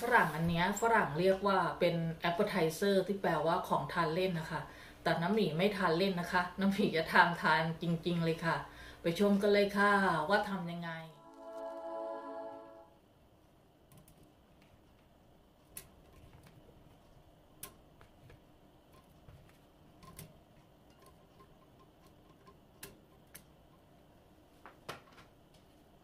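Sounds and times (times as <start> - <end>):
held music chord: 11.1 - 13.0.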